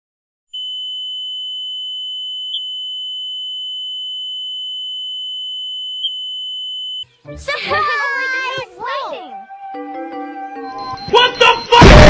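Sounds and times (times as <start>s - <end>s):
high-pitched electronic beep: 10.6s - 12.0s.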